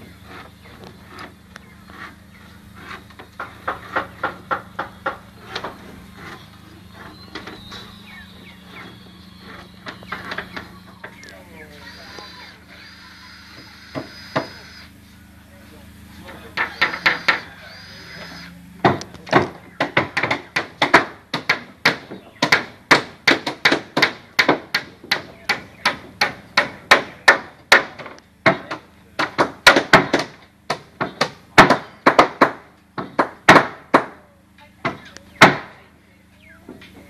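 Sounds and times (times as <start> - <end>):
hammer striking timber: 2.8 - 6.4, 16.5 - 17.5, 18.8 - 34.2, 34.8 - 35.8.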